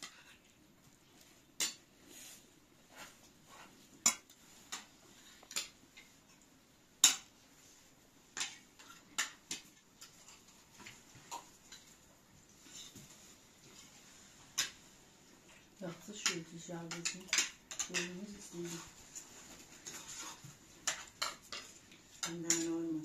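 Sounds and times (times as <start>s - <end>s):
cutlery clinking on plates: 16.2s - 18.2s, 19.8s - 22.8s.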